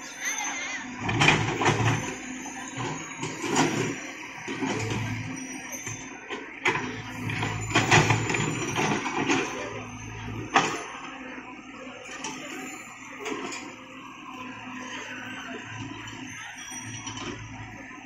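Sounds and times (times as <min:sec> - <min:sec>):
excavator diesel engine under load: 0:00.1 - 0:18.0
excavator bucket clanks and knocks: 0:07.7 - 0:09.6.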